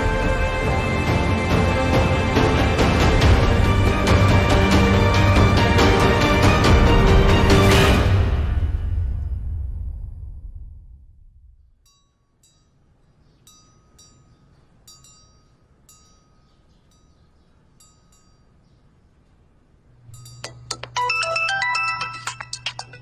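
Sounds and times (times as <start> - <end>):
faint chime-like tinkles: 11.8 - 18.8, 20.1 - 22.6
smartphone ringtone melody: 20.2 - 23.0.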